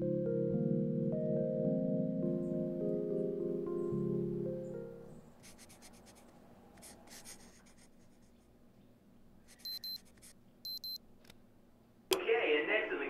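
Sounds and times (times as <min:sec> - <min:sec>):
pen scratching on paper: 0:05.4 - 0:08.4
short high electronic beeps: 0:09.6 - 0:10.0, 0:10.7 - 0:11.0.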